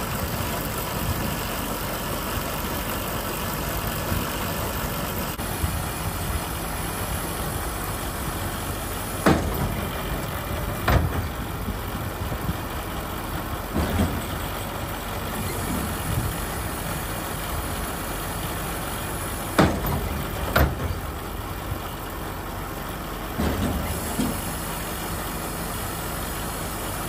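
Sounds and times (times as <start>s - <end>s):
engine idling: 0.0s - 27.0s
sharp knocks: 9.2s - 9.9s, 19.6s - 21.0s.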